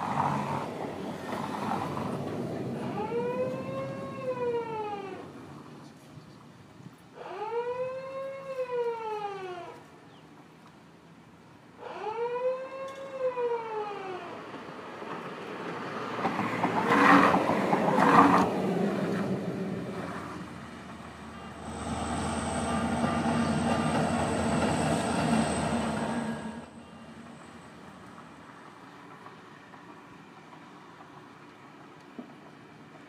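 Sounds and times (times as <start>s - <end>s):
train rumble: 0.0s - 7.0s, 14.4s - 33.0s.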